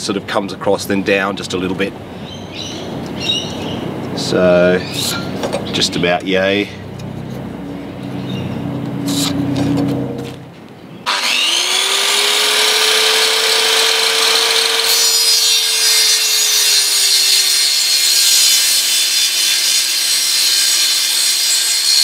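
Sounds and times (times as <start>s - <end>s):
circular saw cutting timber: 11.0s - 22.0s.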